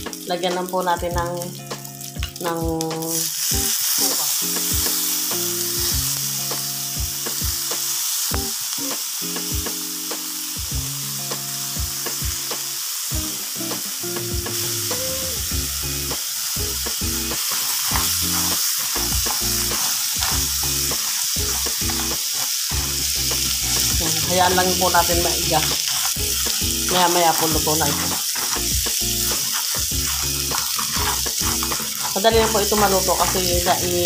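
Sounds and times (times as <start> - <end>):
crabs sizzling in hot oil: 0.0 - 34.0
stirring clicks and scrapes: 17.4 - 24.0, 25.0 - 34.0.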